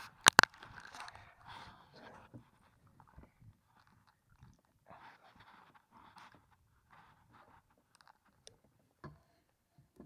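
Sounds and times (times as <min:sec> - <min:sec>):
faint rustling and small clicks: 0:00.0 - 0:10.0.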